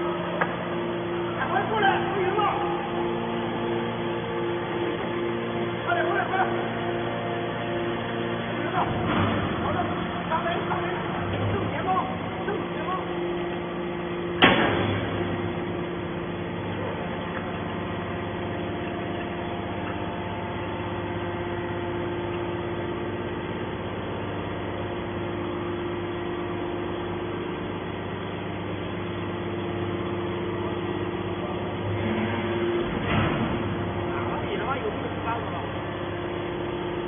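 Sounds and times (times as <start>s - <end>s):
hydraulic baler humming: 0.0s - 37.0s.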